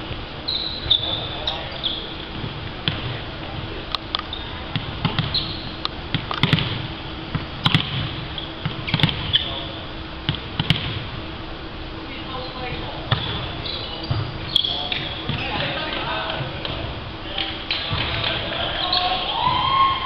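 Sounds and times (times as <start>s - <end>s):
sneakers squeaking on court: 0.4s - 3.2s, 4.2s - 10.9s, 12.3s - 15.8s.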